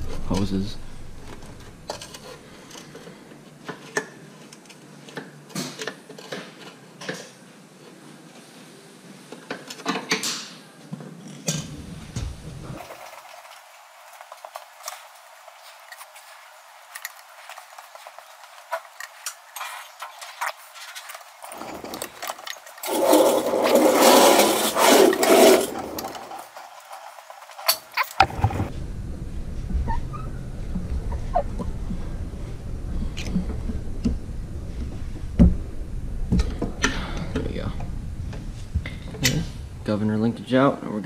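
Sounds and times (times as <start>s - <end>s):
rough metal scraping: 18.7s - 28.7s.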